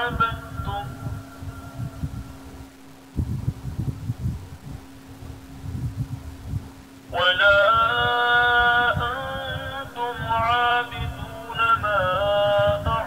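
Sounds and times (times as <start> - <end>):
person chanting melodically: 0.0 - 2.5, 7.1 - 13.0
steady low hum: 0.0 - 13.0.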